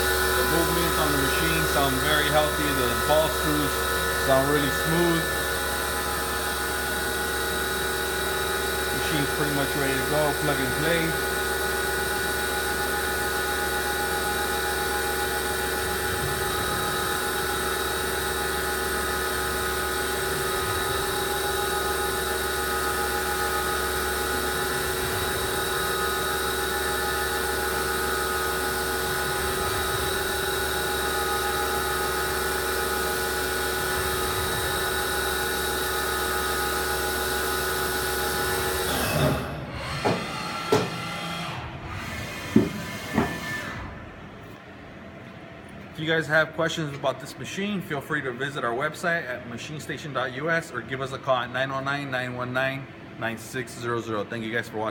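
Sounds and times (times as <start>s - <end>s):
low hum: 0.0s - 11.2s
machine whine: 0.0s - 45.4s.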